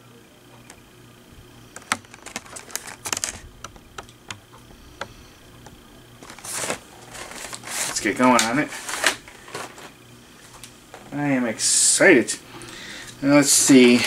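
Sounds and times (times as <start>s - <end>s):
plastic tray clicking and crackling: 1.7s - 5.2s.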